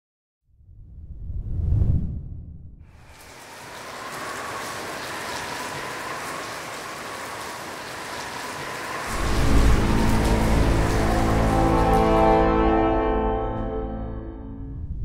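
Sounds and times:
heavy rain hissing: 2.9 - 13.6
music with low sustained notes: 9.1 - 15.0.

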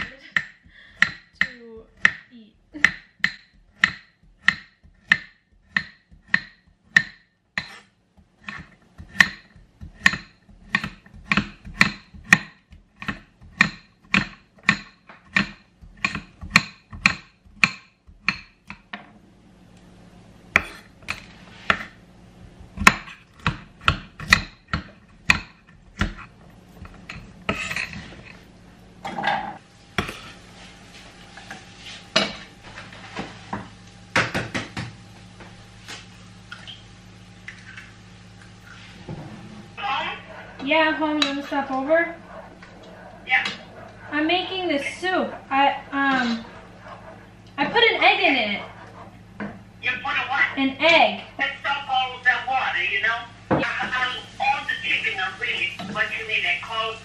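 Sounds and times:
knife chopping on cutting board: 0.0 - 2.2, 2.8 - 18.9, 20.6 - 21.9, 22.5 - 28.0, 30.0 - 30.3.

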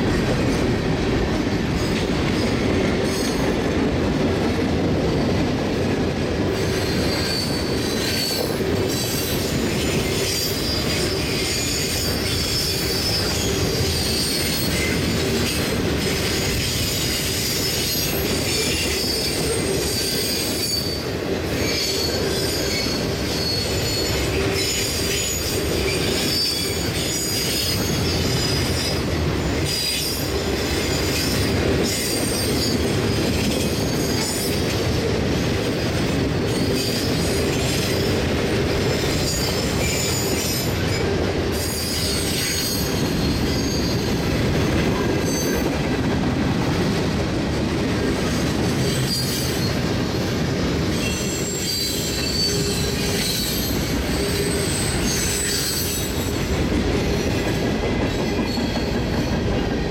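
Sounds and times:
steel wheels rumbling on rail: 0.0 - 59.9
high-pitched wheel squeal: 6.6 - 9.1, 21.6 - 29.0, 41.6 - 44.1, 51.0 - 56.4.

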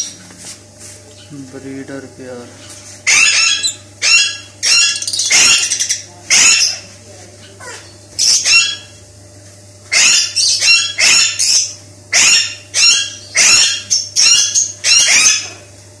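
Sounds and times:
lovebirds chirping: 2.6 - 8.9, 10.0 - 15.6.

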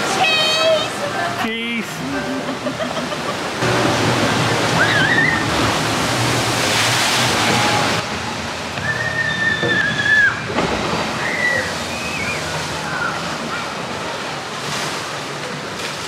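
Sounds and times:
water rushing and splashing: 0.0 - 16.0
steady high tone: 7.3 - 10.5.

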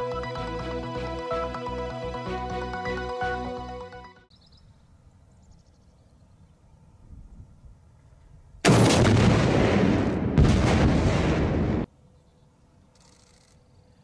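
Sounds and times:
launcher blast: 8.6 - 11.9
loud boom: 8.6 - 11.9.

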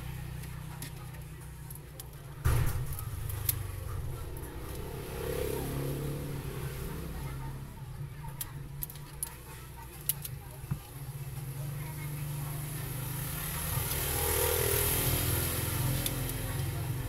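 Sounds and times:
low rumble of traffic: 0.0 - 17.0
light clicks and handling: 8.2 - 11.1.

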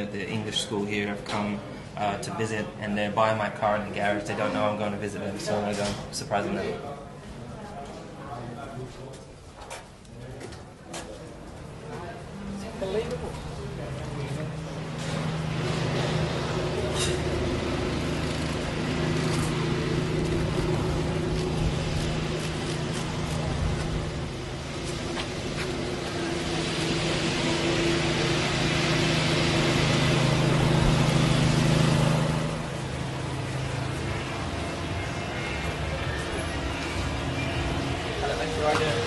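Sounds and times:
low engine hum: 12.0 - 39.0
rush of noise: 14.6 - 39.0.

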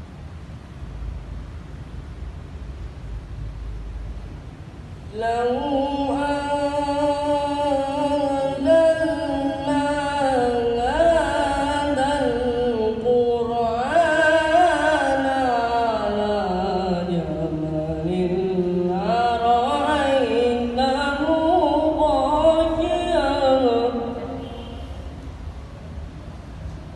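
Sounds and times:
young person reciting melodically: 5.1 - 25.1.

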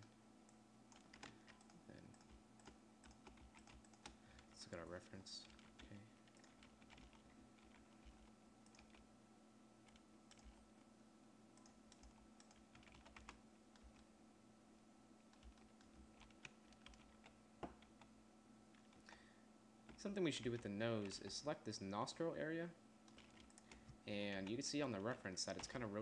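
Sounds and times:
low steady hum: 0.0 - 26.0
keyboard keystrokes: 5.4 - 9.0, 23.1 - 24.5.

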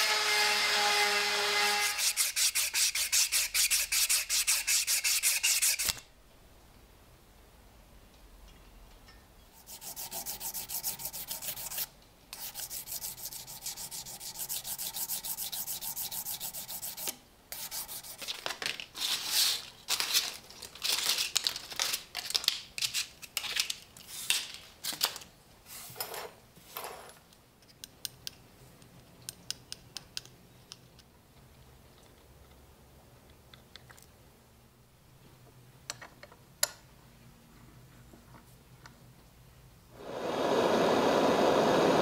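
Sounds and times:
sanding metal by hand: 1.6 - 6.0, 9.6 - 18.3.

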